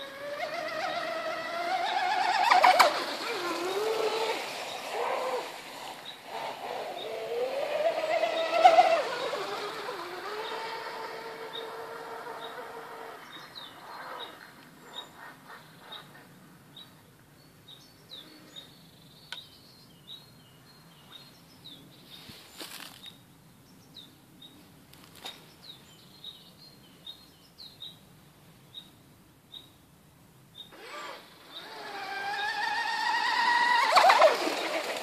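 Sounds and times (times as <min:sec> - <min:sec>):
rc boat motor whine: 0:00.0 - 0:14.5, 0:30.7 - 0:35.0
small birds chirping: 0:05.8 - 0:28.1, 0:30.5 - 0:33.1.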